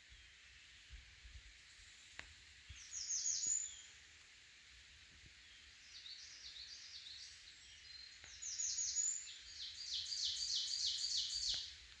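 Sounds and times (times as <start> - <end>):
wood warbler singing: 1.7 - 4.0, 5.4 - 11.7.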